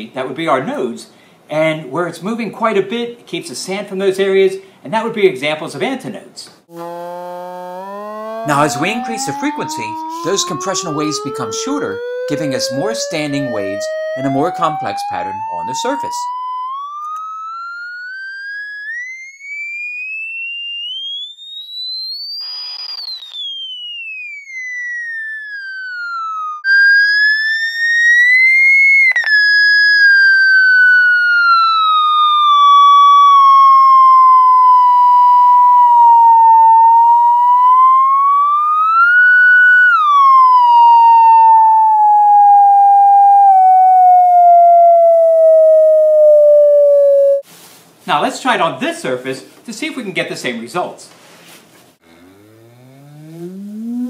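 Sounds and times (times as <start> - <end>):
electronic tone sweeping in pitch: 6.7 - 47.4, 52.0 - 54.0.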